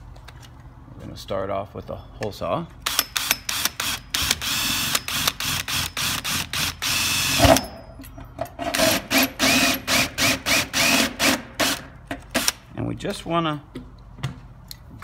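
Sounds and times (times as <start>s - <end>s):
power drill cutting sheet metal: 2.9s - 7.7s, 8.7s - 11.8s.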